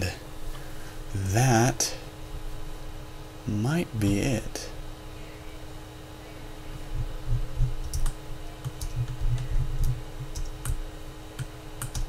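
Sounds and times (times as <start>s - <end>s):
steady low hum: 0.0s - 12.0s
low rumble: 6.7s - 8.0s.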